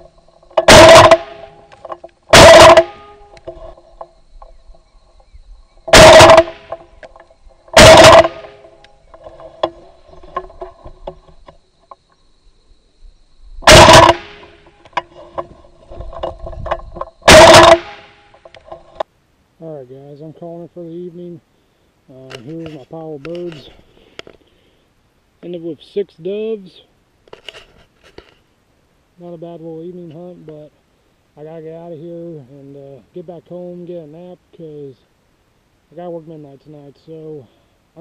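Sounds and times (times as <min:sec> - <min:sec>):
shotgun shots: 0:00.6 - 0:01.6, 0:02.3 - 0:03.2, 0:05.9 - 0:06.8, 0:07.8 - 0:08.6, 0:13.6 - 0:14.6, 0:17.3 - 0:18.2.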